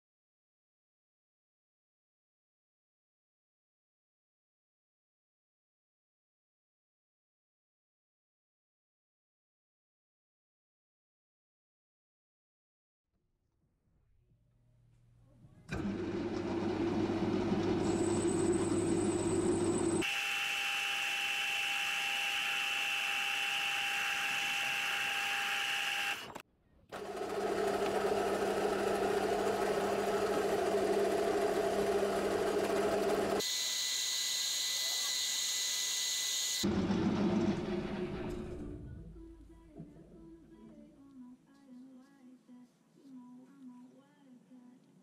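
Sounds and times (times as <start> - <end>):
metal lathe cutting: 15.8 - 26.4, 27.0 - 37.5.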